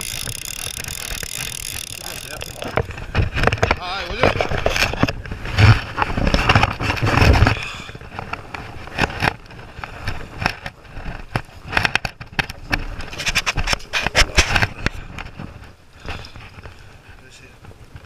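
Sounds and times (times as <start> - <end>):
gear scraping and knocking: 0.0 - 16.7.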